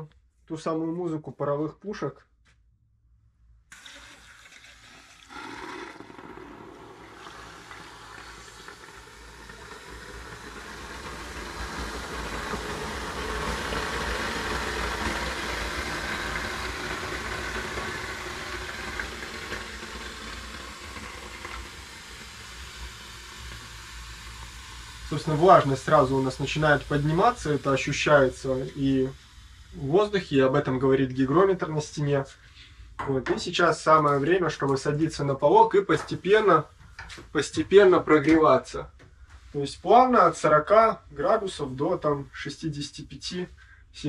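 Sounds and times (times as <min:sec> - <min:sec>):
water flashing into steam: 0:03.7 - 0:31.3.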